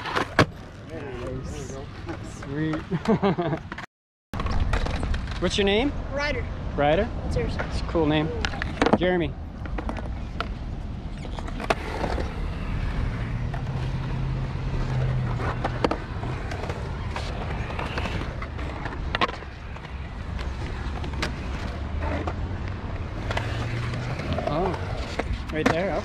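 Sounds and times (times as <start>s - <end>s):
skateboard wheels rolling: 0.0s - 3.8s, 4.4s - 6.4s, 7.2s - 26.0s
skateboard clacks: 14.8s - 26.0s.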